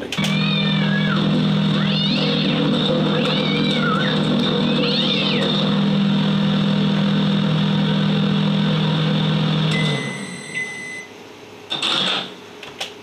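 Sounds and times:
microwave oven humming: 0.0s - 13.0s
microwave beep: 9.3s - 11.2s.

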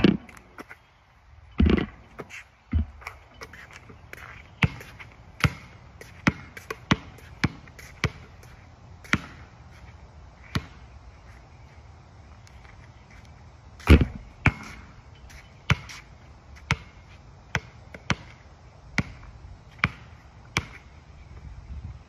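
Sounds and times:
basketball bouncing on hard court: 4.6s - 8.3s, 9.0s - 9.5s, 10.5s - 10.8s, 13.8s - 14.8s, 15.7s - 15.9s, 16.7s - 16.9s, 17.5s - 18.4s, 19.8s - 20.8s.

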